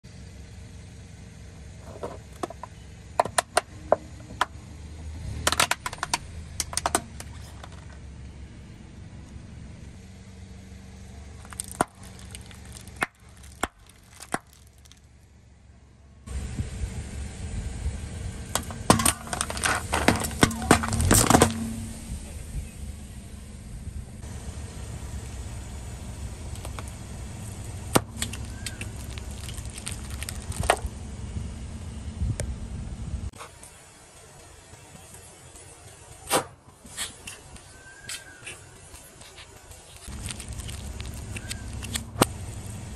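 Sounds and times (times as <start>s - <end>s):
car low steady hum: 0.0s - 36.2s, 37.4s - 42.9s
packets cracking and popping: 11.4s - 15.1s, 18.9s - 21.6s, 26.5s - 27.0s, 27.9s - 30.9s, 38.9s - 42.3s.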